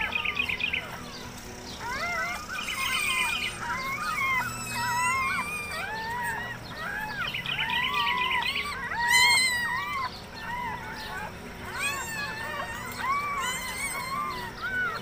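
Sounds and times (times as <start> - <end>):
newborn puppies squeaking: 0.0 - 15.0.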